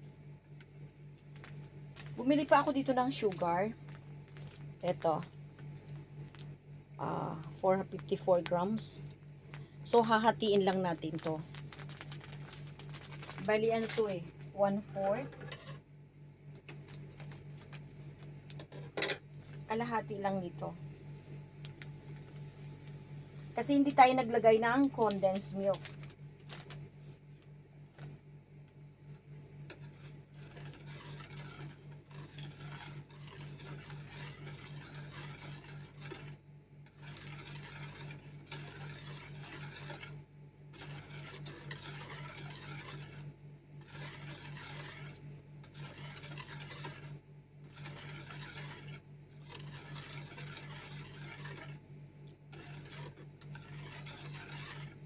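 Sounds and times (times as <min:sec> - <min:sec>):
utensil scraping plastic bowl: 0:12.4 - 0:15.8, 0:29.7 - 0:51.8, 0:52.5 - 0:55.0.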